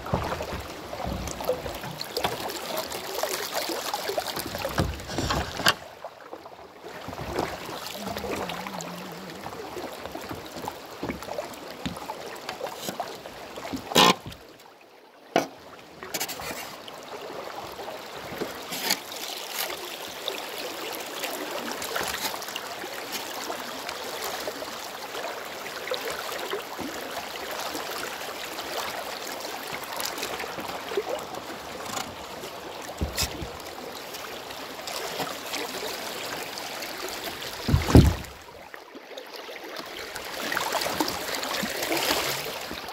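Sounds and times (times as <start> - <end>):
river flowing over rocks: 0.0 - 14.6, 16.7 - 42.9
sharp knocks: 37.7 - 38.3.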